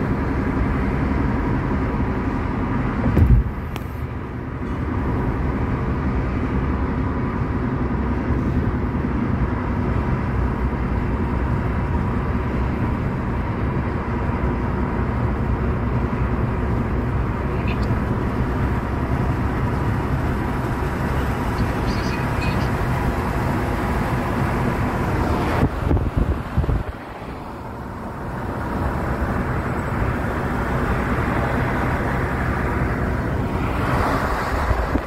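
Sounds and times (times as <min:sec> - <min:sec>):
car cabin road and engine noise: 0:00.0 - 0:35.0
loud low thump: 0:03.1 - 0:03.6.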